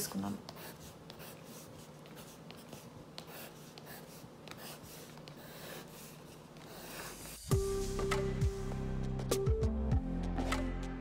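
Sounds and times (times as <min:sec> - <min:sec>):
pencil scratching on board: 0:00.0 - 0:07.5.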